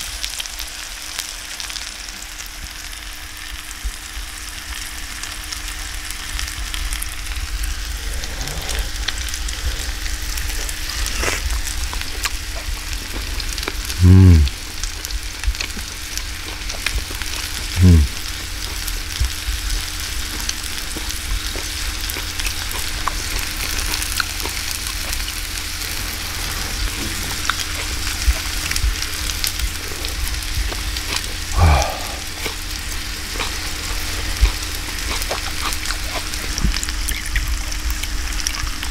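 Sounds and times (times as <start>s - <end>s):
meat sizzling on a grill: 0.0s - 31.5s
person humming while eating: 14.0s - 14.6s, 17.8s - 18.2s, 31.5s - 32.6s.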